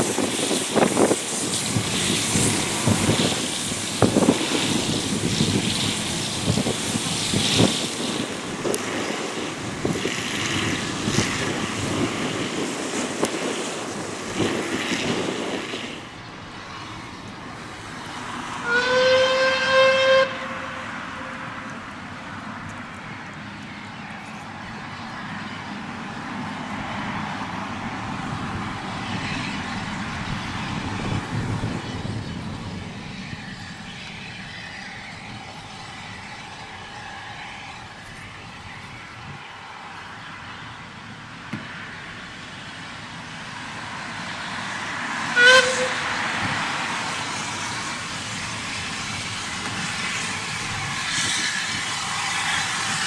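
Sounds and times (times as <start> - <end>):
steam locomotive hissing: 0.0 - 22.5, 42.0 - 53.0
steam whistle blast: 18.6 - 21.6, 45.3 - 46.2.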